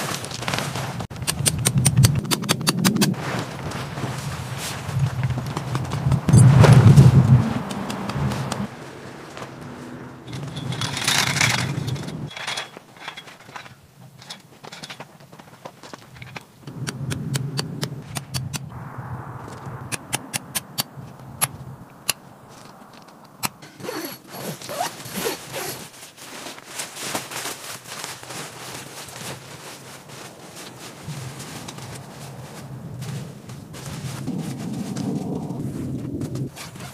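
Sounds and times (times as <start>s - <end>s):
tent fabric rustling: 0.0s - 1.1s, 3.1s - 13.7s, 23.6s - 36.9s
crunching on gravel: 0.0s - 1.2s, 3.1s - 16.6s, 22.2s - 36.9s.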